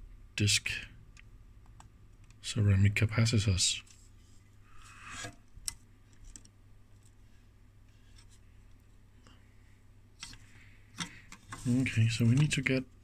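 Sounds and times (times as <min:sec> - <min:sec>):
low background hum: 0:00.0 - 0:13.0
fingers handling a circuit board: 0:05.2 - 0:07.2.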